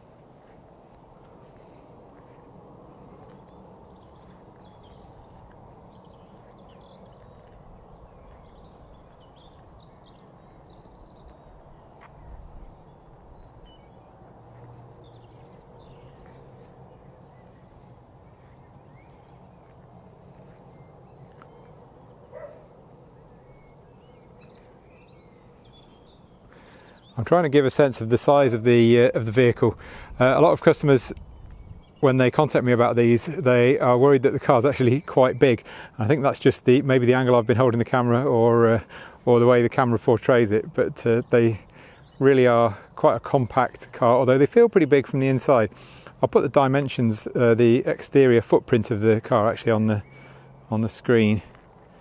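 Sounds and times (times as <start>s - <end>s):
small bird chirps: 1.5s - 27.2s.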